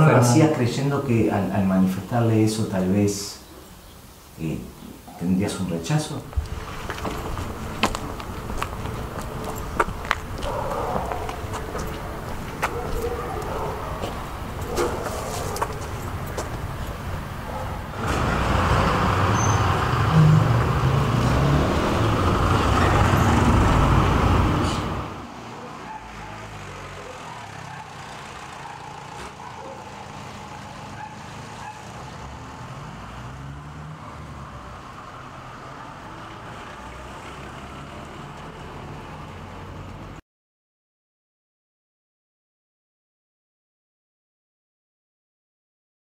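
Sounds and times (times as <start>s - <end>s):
distant traffic: 0.0s - 40.2s
motor vehicle running close: 6.1s - 40.2s.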